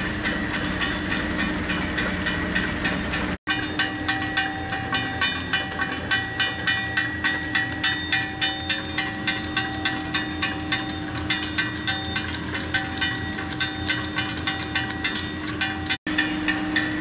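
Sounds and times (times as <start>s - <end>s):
packing machine clicking: 0.0s - 16.0s
mechanical hum: 0.0s - 17.0s.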